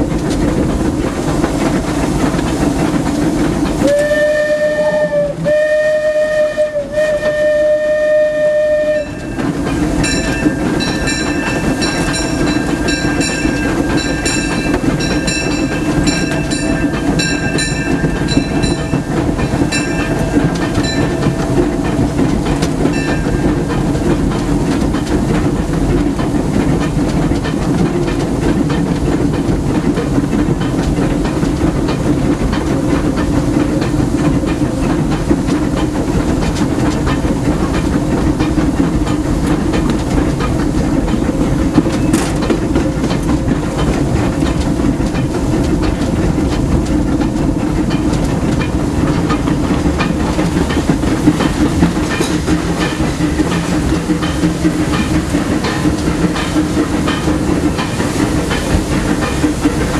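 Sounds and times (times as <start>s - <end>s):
locomotive clatter: 0.0s - 59.9s
steam whistle blasts: 3.8s - 9.4s
steam hiss: 32.1s - 59.9s.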